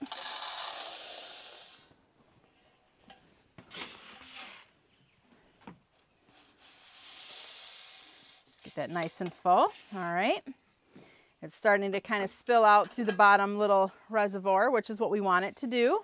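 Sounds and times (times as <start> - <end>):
seed pouring hiss: 0.0 - 1.9, 3.7 - 4.7, 6.3 - 8.8
scoop rustling in seed: 3.7 - 4.8.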